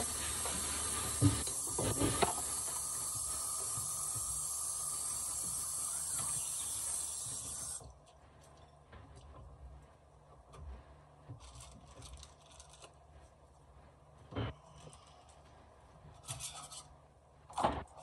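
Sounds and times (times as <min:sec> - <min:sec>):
steady hiss: 0:00.0 - 0:07.8.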